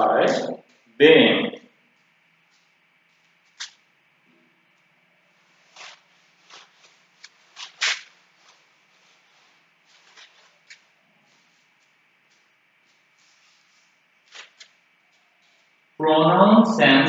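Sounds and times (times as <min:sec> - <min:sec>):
cloth wiping chalkboard: 0:05.2 - 0:15.9.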